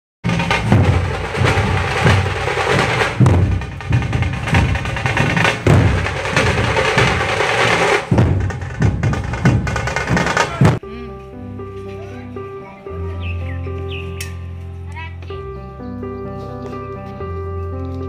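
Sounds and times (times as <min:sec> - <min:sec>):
bass drum beat: 0:00.2 - 0:11.2
drum-led intro music: 0:00.2 - 0:18.0.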